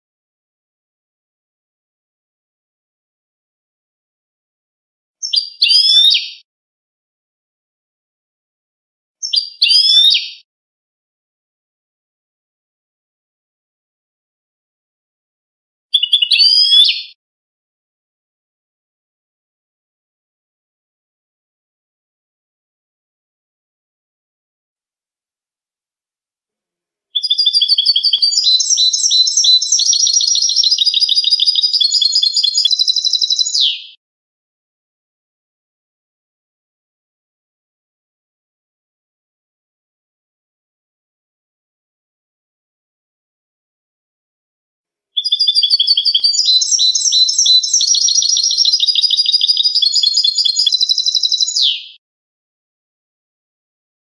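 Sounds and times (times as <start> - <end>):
goldfinch singing: 16.0 - 17.0, 27.2 - 33.9, 45.2 - 52.0.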